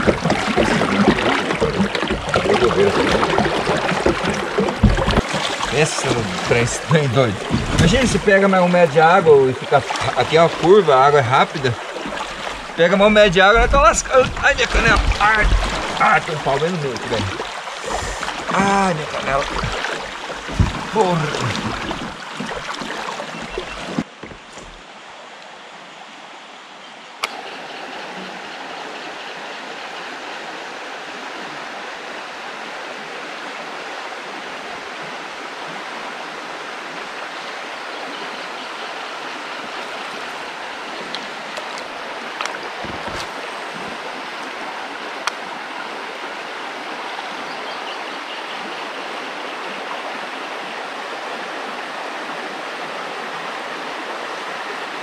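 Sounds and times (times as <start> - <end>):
small knocks: 0.0 - 5.7, 23.5 - 24.8
river water rushing over rapids: 0.0 - 55.0.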